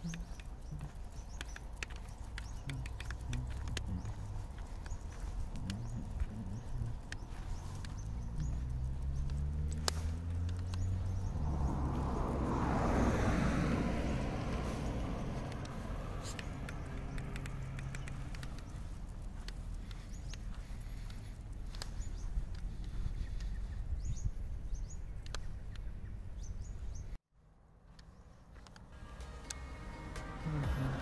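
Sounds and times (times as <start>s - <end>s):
footsteps on pavement: 0.0s - 27.1s, 27.9s - 31.0s
car driving past: 5.2s - 19.5s.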